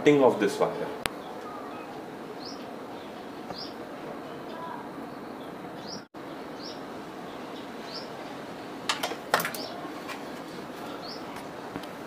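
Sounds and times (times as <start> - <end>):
steady background noise: 0.0 - 12.0
small bird chirping: 1.1 - 3.8, 4.4 - 8.2
parts clattering: 8.9 - 10.5.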